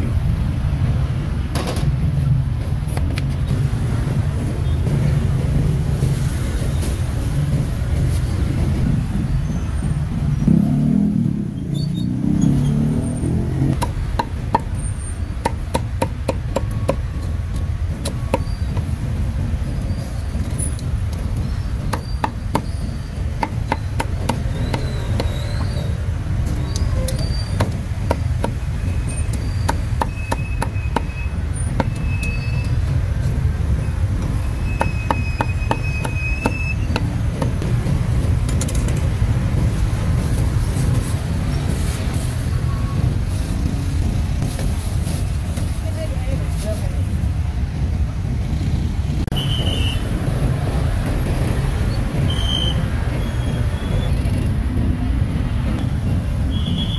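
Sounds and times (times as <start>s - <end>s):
low rumble of street traffic: 0.0s - 56.9s
cleaver chopping meat: 23.4s - 25.4s.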